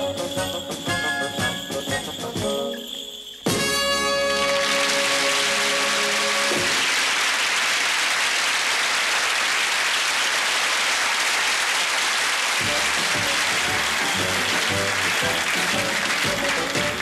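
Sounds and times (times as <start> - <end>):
band music: 0.0 - 6.8, 12.6 - 17.0
audience applauding: 4.2 - 17.0.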